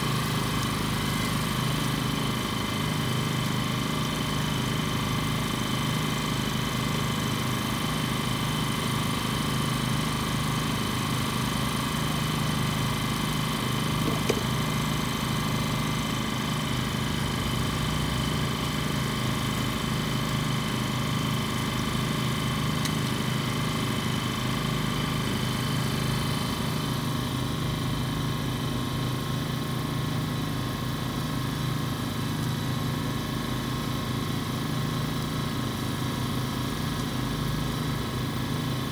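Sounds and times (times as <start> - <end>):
engine idling drone: 0.0 - 38.9.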